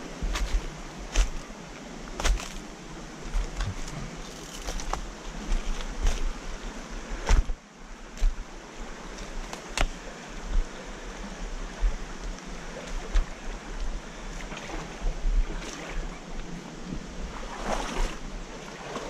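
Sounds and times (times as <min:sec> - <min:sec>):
river water rushing: 0:00.0 - 0:19.0
sharp knocks and splashes: 0:17.3 - 0:19.0.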